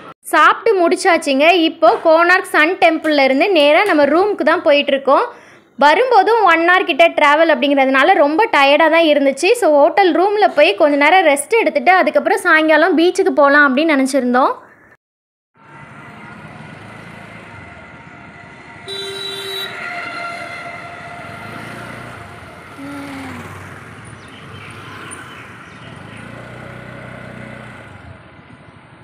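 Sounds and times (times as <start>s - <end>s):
motorbike engine and road noise: 15.6s - 29.0s
vehicle horn: 18.6s - 22.8s.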